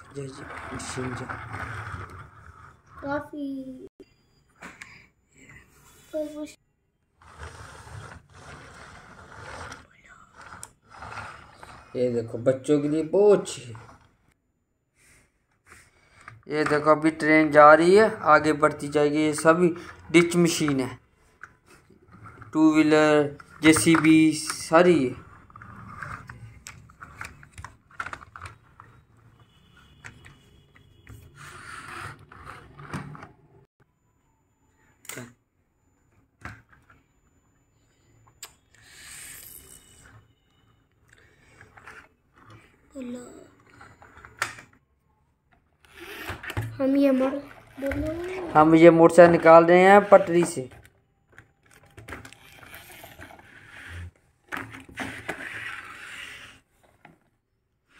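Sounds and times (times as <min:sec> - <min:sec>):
plastic toys clicking and scraping: 0:00.0 - 0:03.3, 0:07.2 - 0:14.2, 0:15.6 - 0:33.4, 0:41.0 - 0:44.8, 0:45.5 - 0:57.3.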